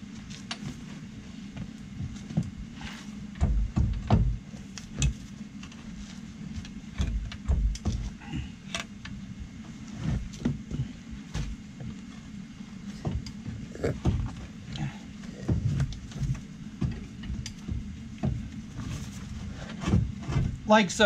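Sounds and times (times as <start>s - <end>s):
low steady hum: 0.0s - 21.0s
metal clunks and knocks: 3.3s - 5.2s, 6.9s - 8.2s.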